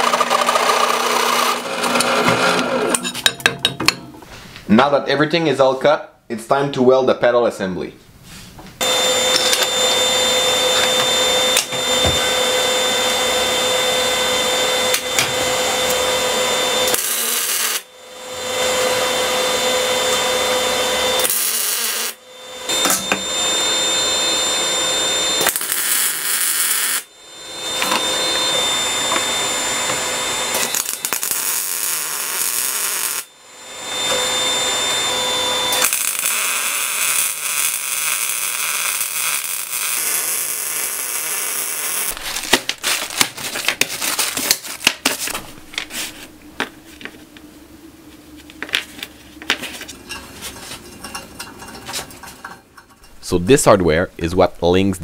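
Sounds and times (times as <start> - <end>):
welder welding steel: 8.8 - 46.1.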